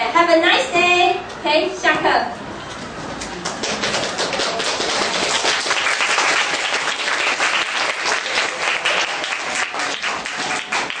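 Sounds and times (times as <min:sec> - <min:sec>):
crowd applauding: 0:03.2 - 0:11.0.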